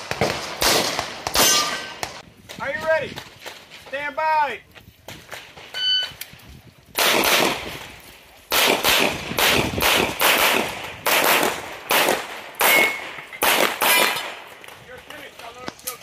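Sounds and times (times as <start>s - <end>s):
handgun shots: 8.5s - 14.3s.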